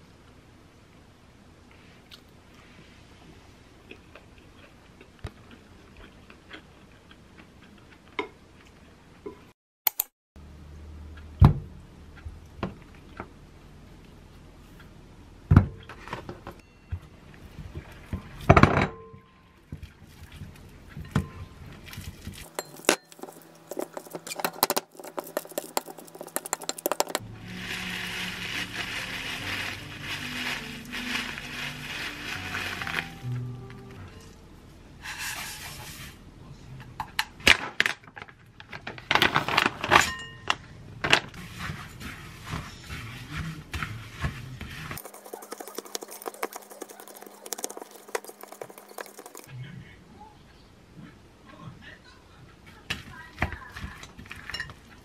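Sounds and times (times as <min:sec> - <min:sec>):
bowls and utensils knocking: 0:22.5 - 0:27.2, 0:45.0 - 0:49.5
spoon clinking on ceramic bowl: 0:22.5 - 0:27.2
oats poured into a bowl: 0:22.5 - 0:33.3, 0:41.4 - 0:49.5.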